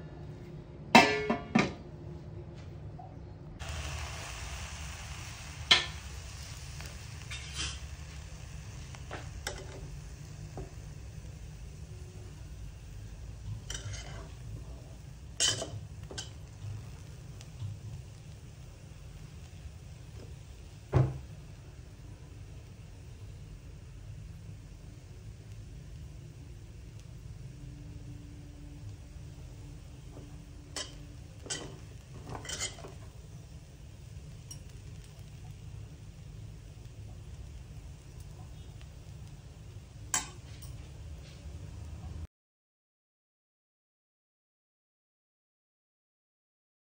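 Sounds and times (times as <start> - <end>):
metal spatula scraping a pot: 7.2 - 7.9, 13.6 - 14.4, 30.7 - 33.0.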